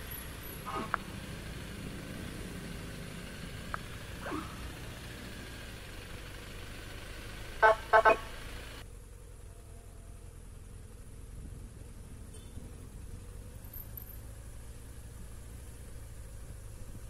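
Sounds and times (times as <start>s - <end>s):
vehicle engine running: 0.0s - 17.0s
loud horn blasts: 7.6s - 8.4s.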